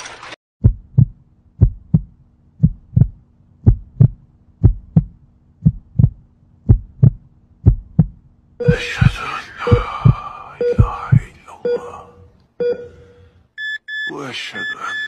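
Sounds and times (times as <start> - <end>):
heartbeat thumps: 0.6 - 11.3
faint steady hum: 1.0 - 15.0.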